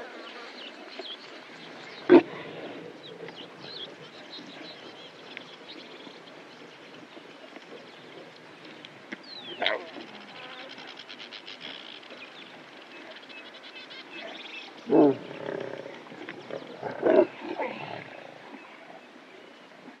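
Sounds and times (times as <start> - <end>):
lion growling: 14.3 - 18.4.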